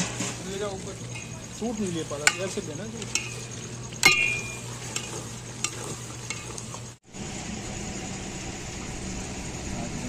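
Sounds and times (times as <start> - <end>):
stew sizzling: 0.0 - 8.8
metal spoon scraping a pot: 2.1 - 6.8.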